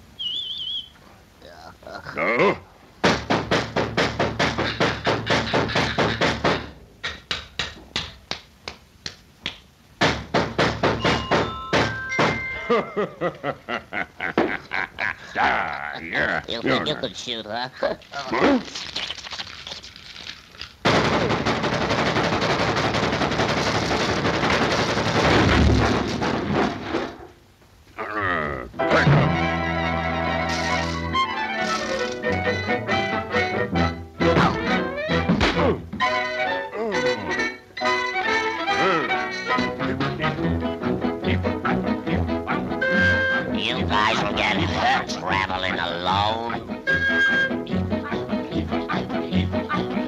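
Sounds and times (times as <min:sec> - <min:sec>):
cartoon machine gun fire: 0:20.8 - 0:26.0.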